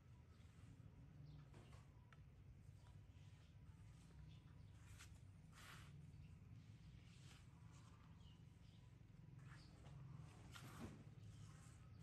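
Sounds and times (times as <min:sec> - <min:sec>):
faint low hum: 0:00.0 - 0:12.0
soft rustle: 0:02.8 - 0:08.6, 0:09.3 - 0:12.0.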